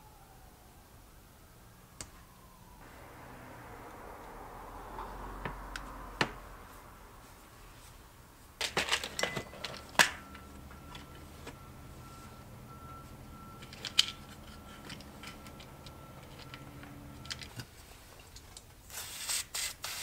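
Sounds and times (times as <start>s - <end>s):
screwdriver and metal parts clicking: 8.6s - 11.6s, 13.6s - 18.7s.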